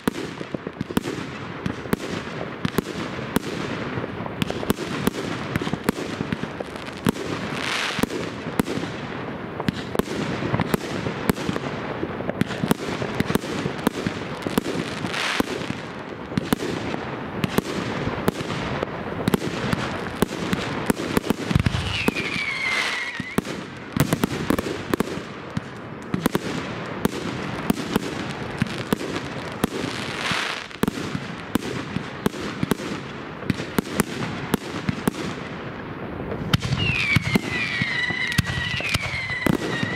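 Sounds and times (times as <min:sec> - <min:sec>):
fireworks bangs and crackles: 0:00.0 - 0:39.9
falling firework whistle: 0:21.5 - 0:23.5, 0:36.5 - 0:39.9.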